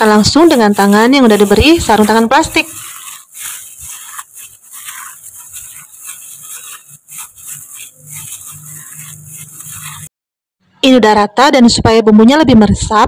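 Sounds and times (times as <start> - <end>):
plastic gloves rubbing meat: 0.0 - 10.1.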